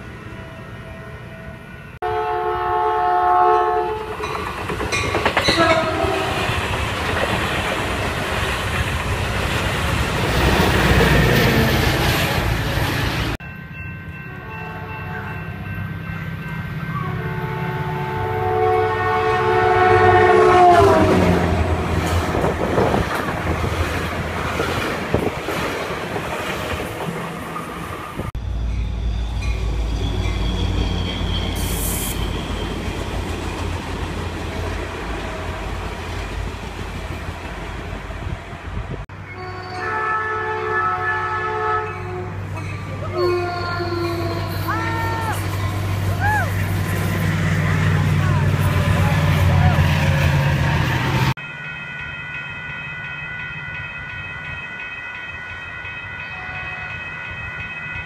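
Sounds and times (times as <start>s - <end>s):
train rumbling on rails: 0.0s - 58.0s
train horn chord: 1.0s - 4.2s, 5.5s - 6.5s, 14.3s - 15.6s, 16.8s - 21.9s, 39.2s - 42.4s, 43.1s - 44.7s.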